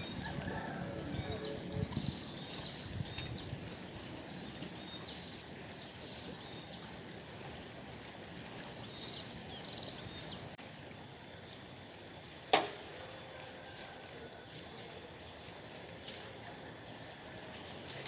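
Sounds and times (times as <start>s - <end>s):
bird chirping: 0.0s - 10.5s
river flowing: 0.0s - 18.0s.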